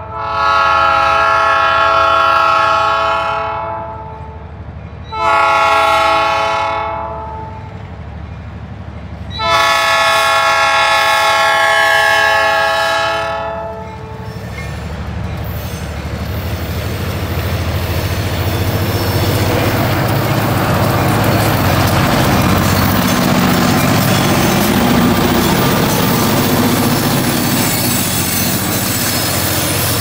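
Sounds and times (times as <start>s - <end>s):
locomotive air horn blast: 0.0s - 4.4s, 5.1s - 7.7s, 9.4s - 14.4s
diesel engines rumbling: 10.7s - 30.0s.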